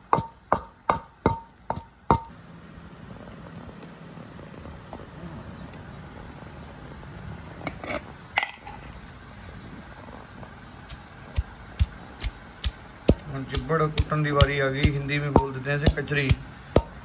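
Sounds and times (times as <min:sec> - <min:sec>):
pestle pounding in mortar: 0:00.0 - 0:02.4, 0:10.8 - 0:17.0.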